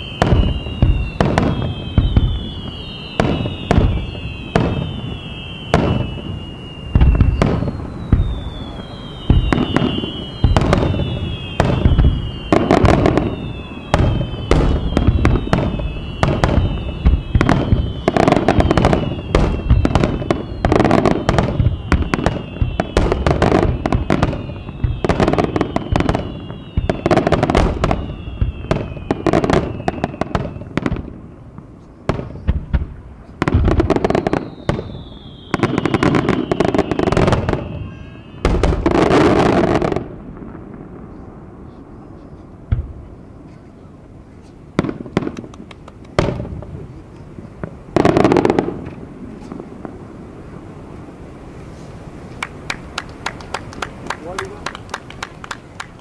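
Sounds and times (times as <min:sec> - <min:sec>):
whistling firework shell: 0:00.0 - 0:41.4
firework bursts and crackling: 0:00.0 - 0:56.0.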